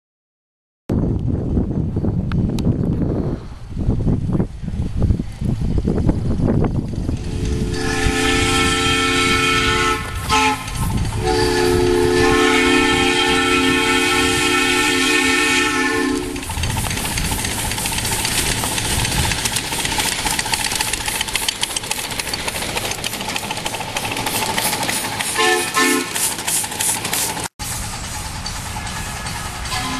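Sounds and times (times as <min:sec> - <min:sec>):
train clicking past: 0:05.5 - 0:29.9
steam hiss: 0:07.1 - 0:29.9
steam whistle blasts: 0:07.2 - 0:16.5, 0:25.4 - 0:26.3, 0:28.9 - 0:29.9.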